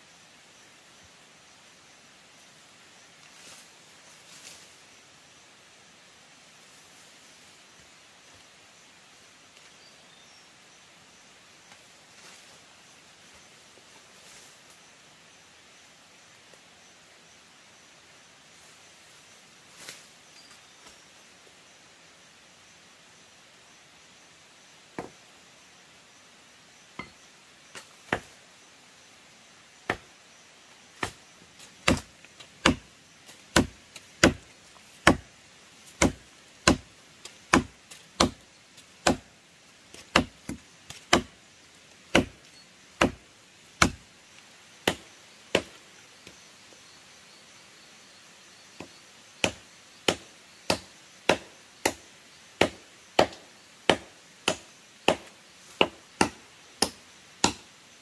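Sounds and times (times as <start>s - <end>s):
blade chopping into wood: 31.0s - 31.2s, 31.8s - 32.9s, 33.5s - 34.4s, 35.0s - 35.2s, 36.0s - 36.9s, 37.5s - 38.4s, 39.0s - 39.2s, 39.9s - 41.3s, 42.1s - 42.4s, 43.0s - 43.2s, 43.8s - 44.0s, 49.4s - 52.0s, 52.6s - 57.6s.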